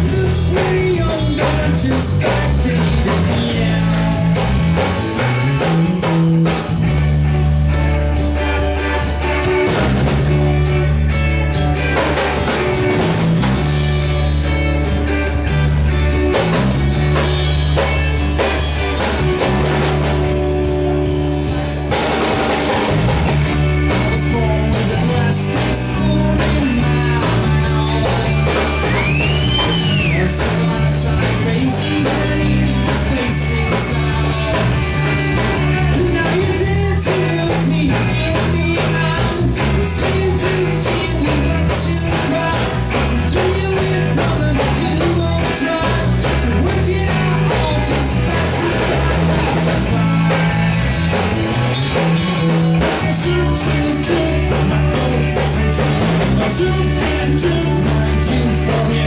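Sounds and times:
person singing: 0:00.0 - 0:06.7, 0:23.6 - 0:50.8, 0:52.7 - 0:59.0
live rock band playing: 0:00.0 - 0:59.0.

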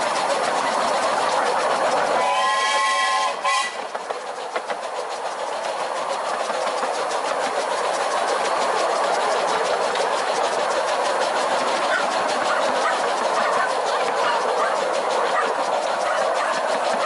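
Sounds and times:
steam locomotive rushing: 0:00.0 - 0:17.0
steam whistle: 0:02.2 - 0:03.8.

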